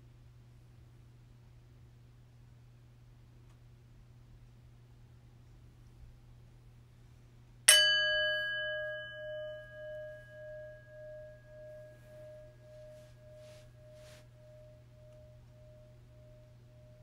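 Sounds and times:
bell ringing with pulsing waver: 7.7 - 17.0.

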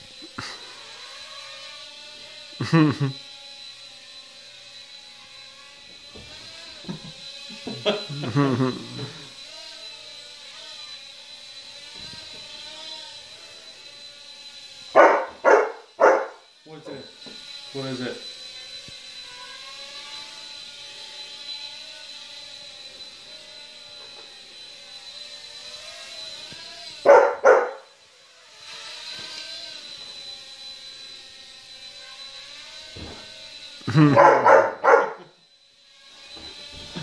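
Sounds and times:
quadcopter motors whining: 0.0 - 37.0
dog barking: 15.0 - 16.4, 27.1 - 27.8, 34.1 - 35.3.

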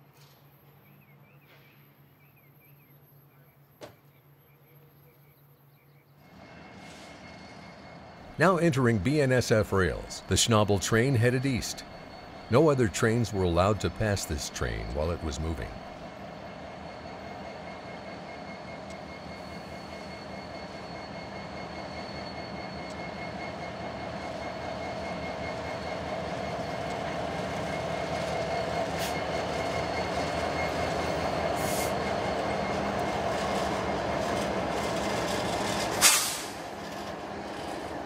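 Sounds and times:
diesel locomotive engines rumbling: 0.0 - 38.0
high whine: 7.4 - 37.8.

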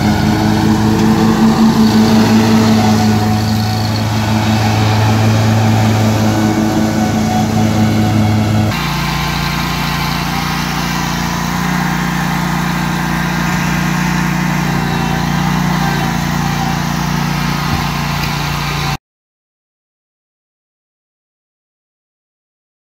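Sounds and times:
mower engine running: 0.0 - 19.0
vacuum blower humming: 0.0 - 19.0.

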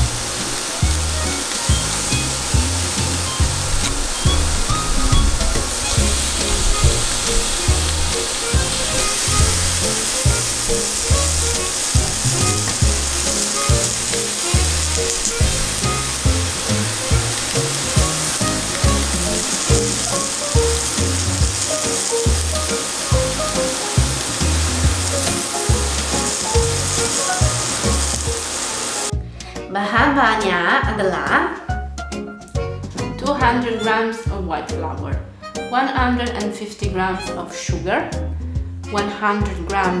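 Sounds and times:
fish sizzling in a pan: 0.0 - 29.2
background music with beat: 0.0 - 39.0.

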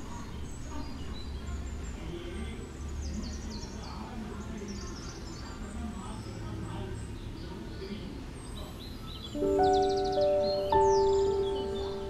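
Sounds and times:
birds chirping: 0.2 - 12.0.

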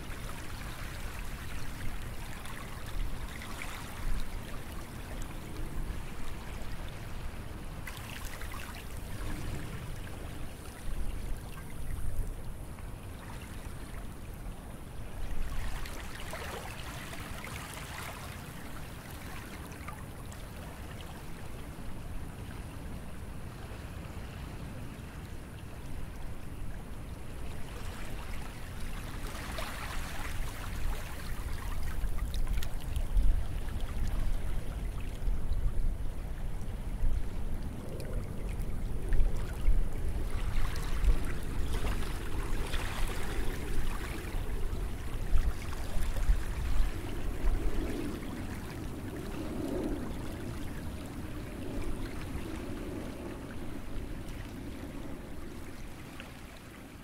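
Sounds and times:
sea waves washing onto beach: 37.6 - 57.0.

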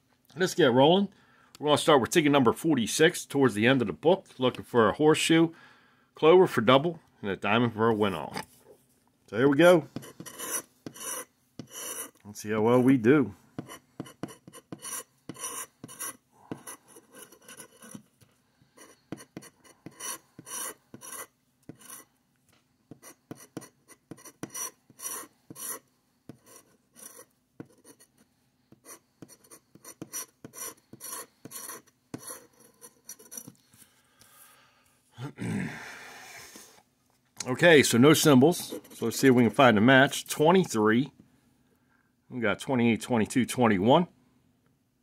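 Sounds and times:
plastic scraper scratching ticket: 10.0 - 12.2, 13.6 - 18.0, 18.8 - 22.0, 22.9 - 28.0, 28.8 - 33.5.

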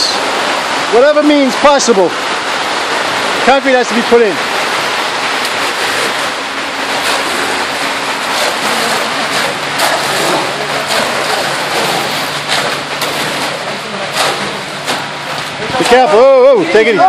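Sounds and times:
wet concrete sliding down chute: 0.0 - 17.0
engine running low: 2.1 - 16.6
shovels scraping concrete: 5.4 - 16.2.

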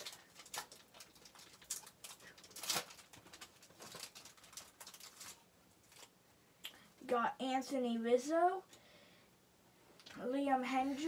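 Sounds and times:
foil wrapper crinkling: 0.0 - 6.2.

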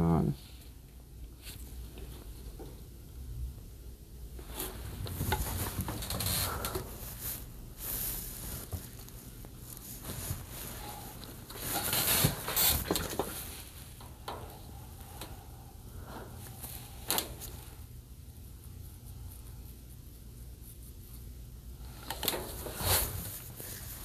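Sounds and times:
faint low hum: 0.0 - 24.0
hands rustling cables: 4.3 - 18.0, 20.7 - 24.0.

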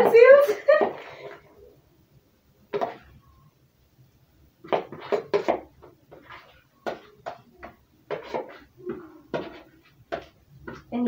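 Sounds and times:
utensil scraping plastic bowl: 4.7 - 10.9.

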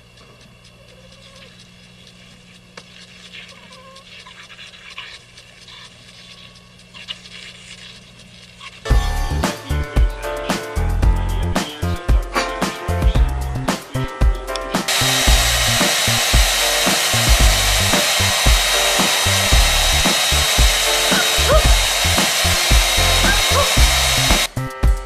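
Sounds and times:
background music with steady beat: 8.9 - 25.0
small motor appliance whining: 14.9 - 24.6.

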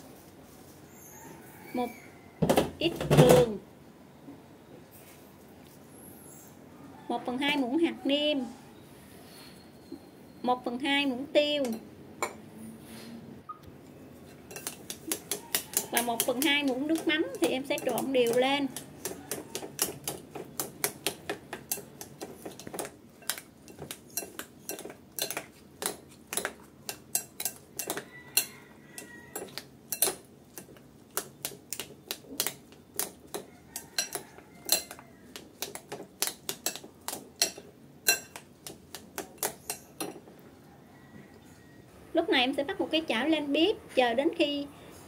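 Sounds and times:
metal spoon clinking glass bowl: 14.5 - 20.2, 22.5 - 30.6, 33.3 - 35.0, 35.7 - 38.4.

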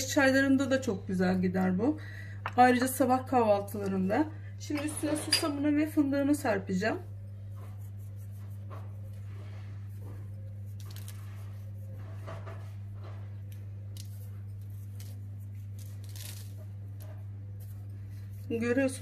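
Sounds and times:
steady low hum: 0.0 - 19.0
seeds pattering and rustling: 14.9 - 16.6.

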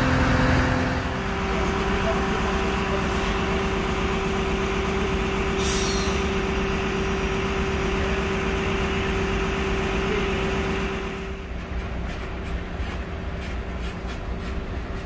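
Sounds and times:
diesel engine whining steadily: 0.0 - 11.7
air hiss: 5.6 - 6.3.

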